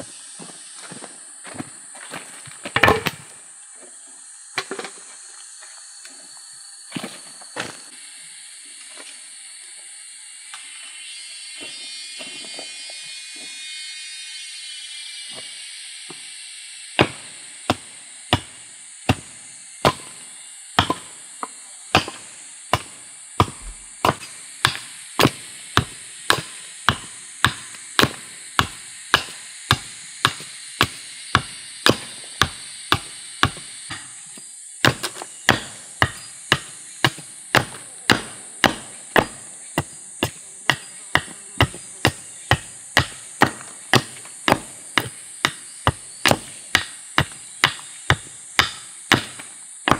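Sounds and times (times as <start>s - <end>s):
hatchet chopping log: 2.6s - 3.3s, 16.9s - 34.2s, 34.8s - 49.9s.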